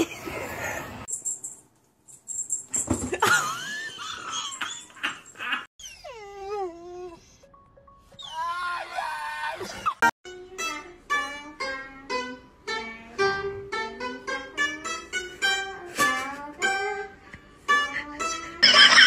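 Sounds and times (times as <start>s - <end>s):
lute plucked slow melody: 10.3s - 18.6s.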